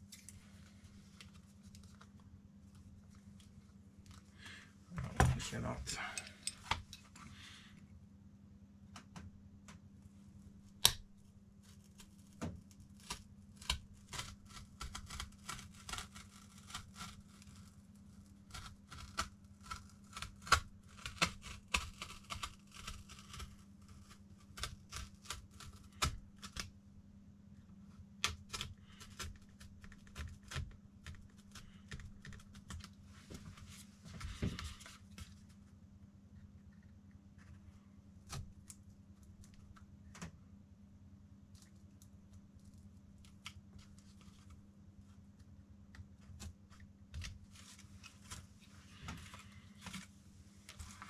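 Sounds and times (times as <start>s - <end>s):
steady low hum: 0.0s - 15.2s
craft knife cutting vinyl: 11.7s - 26.7s.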